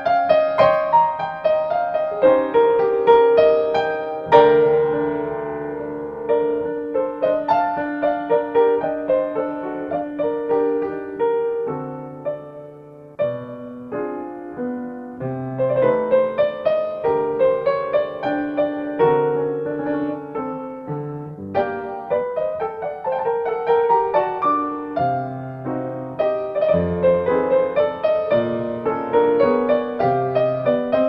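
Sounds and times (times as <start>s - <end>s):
solo piano music: 0.0s - 31.0s.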